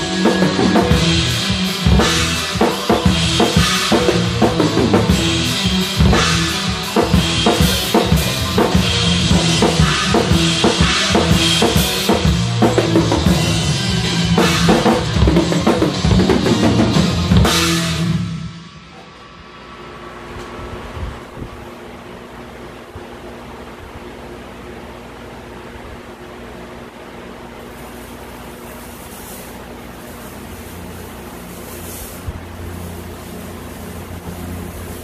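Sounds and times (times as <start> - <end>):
band backing: 0.0 - 19.6, 27.7 - 35.0
rock drum kit played hard: 0.0 - 19.6, 27.8 - 35.0.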